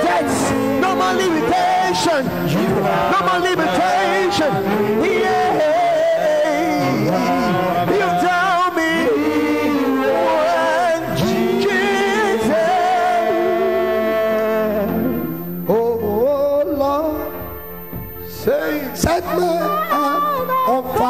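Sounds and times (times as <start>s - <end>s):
musical accompaniment: 0.0s - 21.0s
slow worship song singing: 0.0s - 21.0s.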